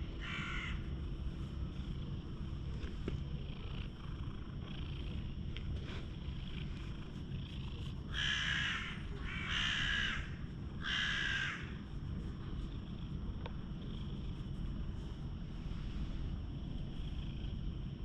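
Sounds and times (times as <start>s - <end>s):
crow cawing: 0.2s - 0.8s, 8.1s - 11.8s.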